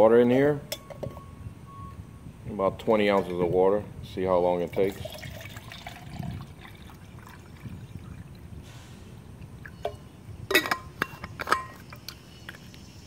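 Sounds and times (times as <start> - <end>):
water pouring into metal cup: 4.7 - 8.4.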